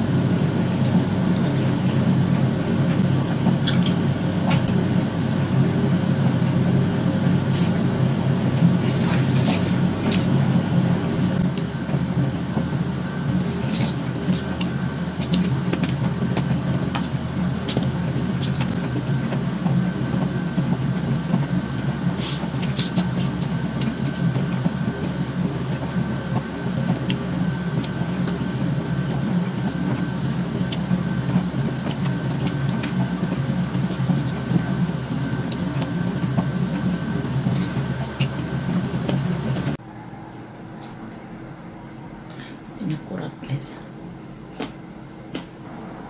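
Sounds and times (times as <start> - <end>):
low mechanical rumble: 0.0 - 46.0
eating clicks and crunches: 3.6 - 4.7, 13.4 - 19.0, 22.1 - 24.3.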